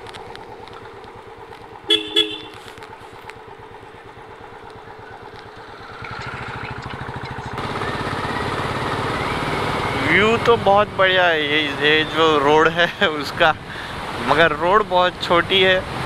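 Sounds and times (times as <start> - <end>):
motorcycle engine running: 0.0 - 16.0
horn tooting: 1.8 - 2.8.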